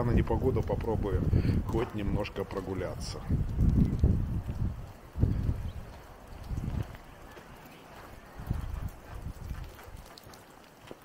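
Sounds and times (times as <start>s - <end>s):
footsteps on a path: 3.3s - 11.0s.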